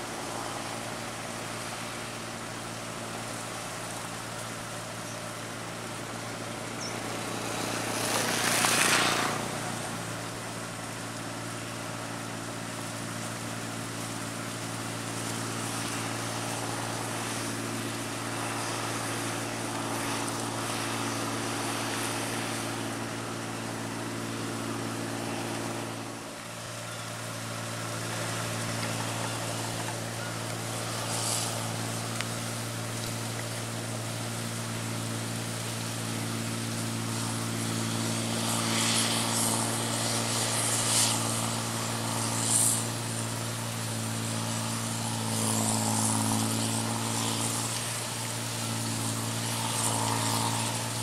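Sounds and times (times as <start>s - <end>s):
combine harvester droning: 0.0s - 51.0s.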